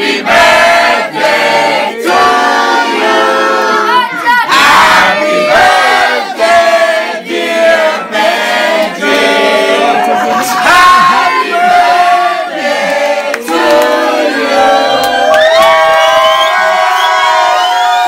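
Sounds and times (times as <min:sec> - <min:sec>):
crowd singing loudly: 0:00.0 - 0:15.7
people shouting: 0:03.6 - 0:05.6, 0:09.8 - 0:12.3.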